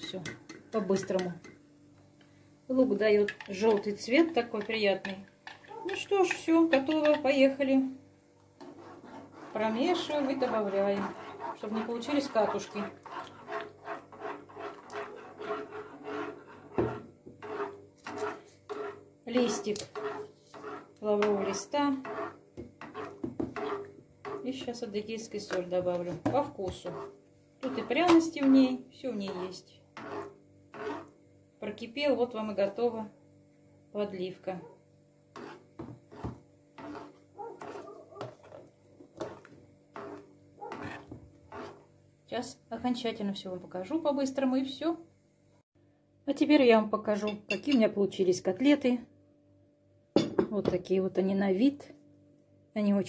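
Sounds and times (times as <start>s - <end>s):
metal spoon scraping a saucepan: 3.1s - 7.8s, 8.6s - 31.2s, 35.3s - 41.9s.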